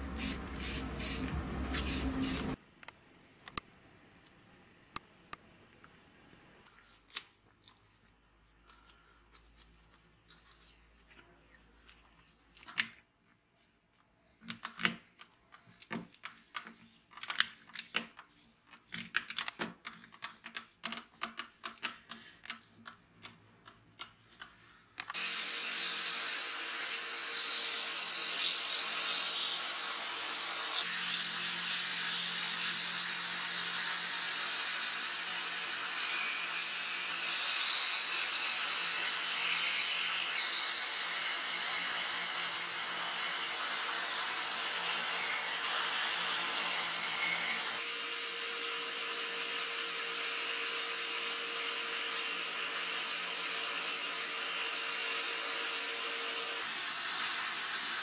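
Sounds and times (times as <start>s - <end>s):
electric drill running: 0.0s - 2.6s, 25.1s - 58.0s.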